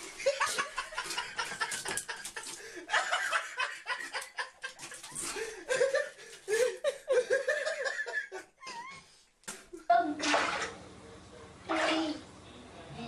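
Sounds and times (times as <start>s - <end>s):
person chuckling: 0.0s - 9.1s.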